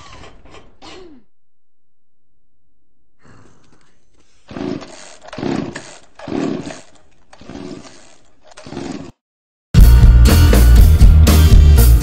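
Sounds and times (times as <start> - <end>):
chainsaw revving: 4.5 - 9.2.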